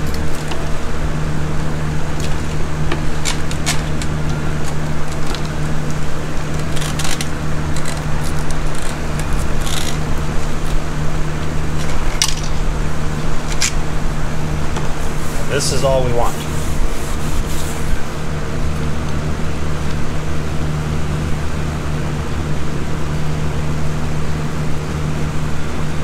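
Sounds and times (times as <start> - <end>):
steady machine hum: 0.0 - 26.0.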